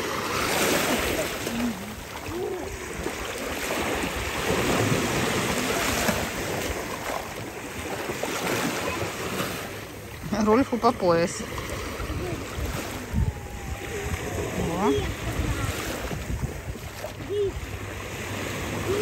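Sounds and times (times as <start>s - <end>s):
small waves lapping on rocks: 0.0s - 19.0s
wind buffeting microphone: 11.6s - 19.0s.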